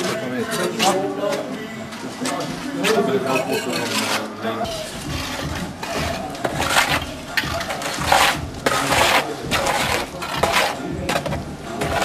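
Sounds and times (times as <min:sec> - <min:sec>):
metal tool scraping firebrick: 0:02.8 - 0:12.0.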